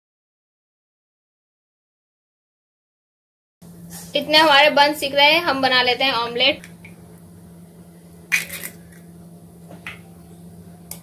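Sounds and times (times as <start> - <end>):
eggshells crackling: 8.3 - 9.0.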